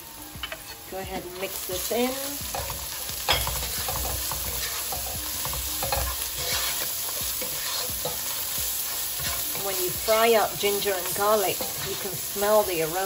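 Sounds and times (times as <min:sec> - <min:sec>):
onions and spices sizzling in oil: 0:00.0 - 0:13.0
spatula scraping pan: 0:00.5 - 0:13.0.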